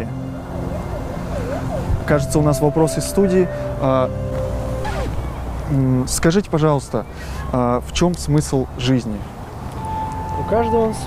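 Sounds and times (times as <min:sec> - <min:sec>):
faint yelping siren: 0:00.0 - 0:05.7
road traffic rumble: 0:00.0 - 0:11.0.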